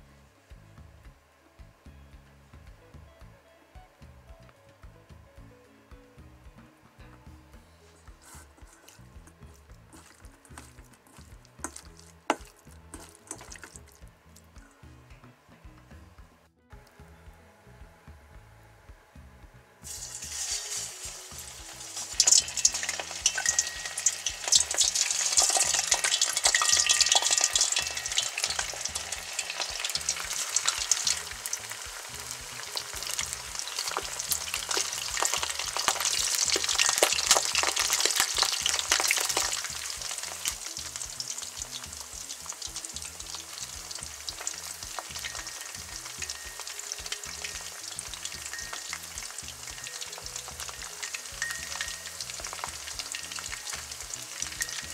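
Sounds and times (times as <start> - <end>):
food deep-frying in oil: 8.1 - 14.7, 19.8 - 54.9.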